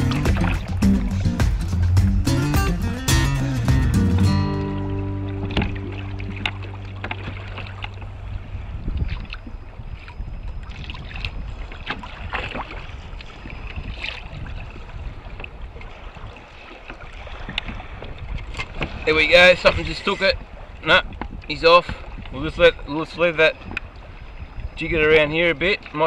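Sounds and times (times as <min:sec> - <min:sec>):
small splashes and knocks: 0:00.0 - 0:01.5, 0:05.4 - 0:14.3, 0:15.3 - 0:19.1
water lapping against hull: 0:00.0 - 0:02.2, 0:04.4 - 0:26.0
wind on microphone: 0:05.4 - 0:22.9, 0:23.5 - 0:25.9.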